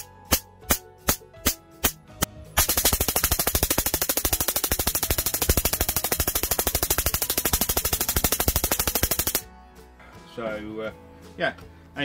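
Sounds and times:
spark igniter snapping: 2.6 - 9.4.

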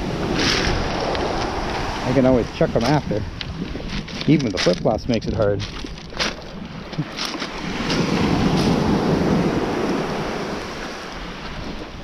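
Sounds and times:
wave washing onto beach: 0.0 - 5.3, 6.5 - 12.0
footsteps on pebbles: 0.2 - 8.9.

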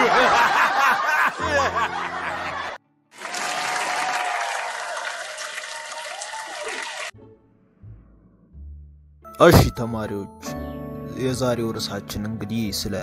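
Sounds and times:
audience laughter: 0.0 - 5.5
recorded applause: 2.5 - 7.1.

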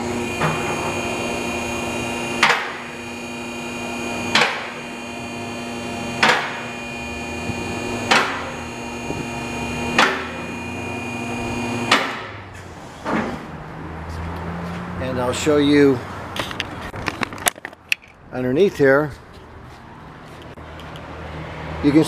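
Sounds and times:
hydraulic pump motor humming: 0.0 - 12.4.

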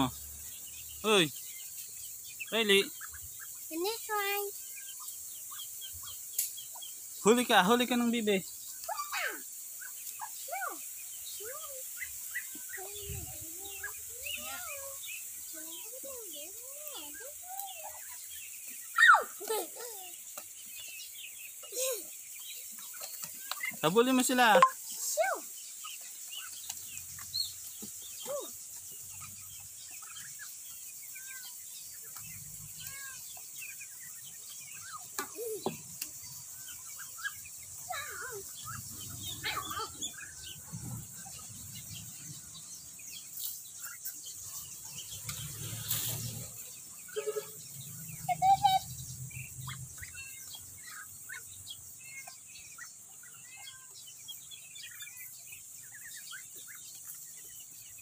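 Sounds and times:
ducklings peeping: 0.0 - 58.0
poultry chirping: 0.0 - 58.0
poultry clucking: 32.0 - 42.4.

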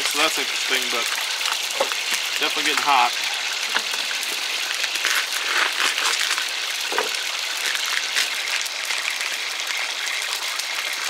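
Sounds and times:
hot oil crackling and spitting: 0.0 - 11.0
paper bag crinkling: 4.8 - 8.8.

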